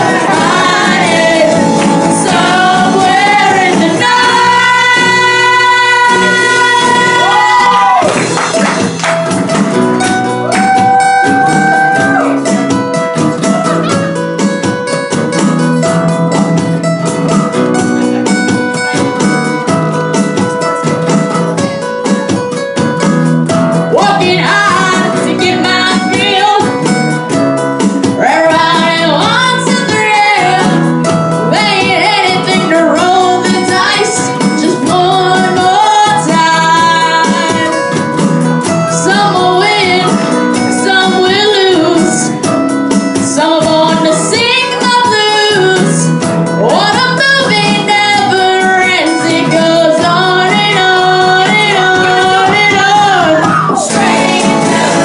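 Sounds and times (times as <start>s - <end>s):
boy singing into a microphone: 0.0s - 7.7s, 23.9s - 26.8s, 28.2s - 30.9s, 31.5s - 37.9s, 38.8s - 42.5s, 43.2s - 55.0s
drum kit: 0.0s - 55.0s
strummed acoustic guitars: 0.0s - 55.0s.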